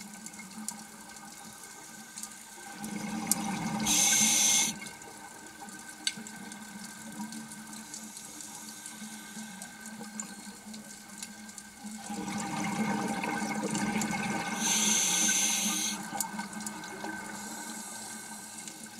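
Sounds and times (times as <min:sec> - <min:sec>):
faint steady hum: 0:01.4 - 0:05.3, 0:06.3 - 0:18.9
rush of bubbles: 0:02.6 - 0:05.1, 0:11.8 - 0:18.9
diver breathing through regulator: 0:03.8 - 0:04.8, 0:14.5 - 0:16.0
sharp hiss: 0:03.8 - 0:04.8, 0:14.6 - 0:16.0.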